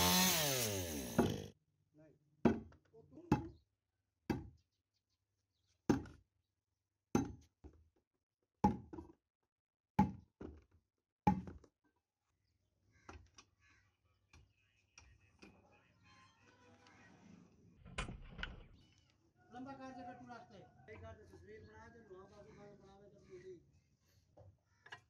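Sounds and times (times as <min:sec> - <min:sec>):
tool knocking on wood: 0:01.2 - 0:01.4, 0:02.4 - 0:03.6.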